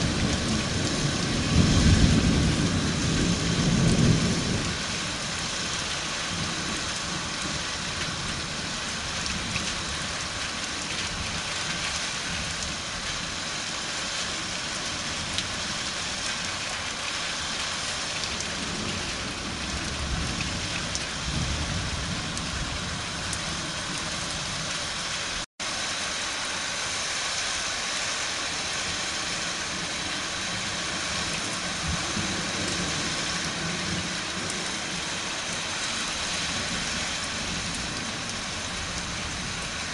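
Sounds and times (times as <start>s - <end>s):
distant thunder rumbles: 0.0s - 8.8s
steady rain falling: 0.0s - 39.9s.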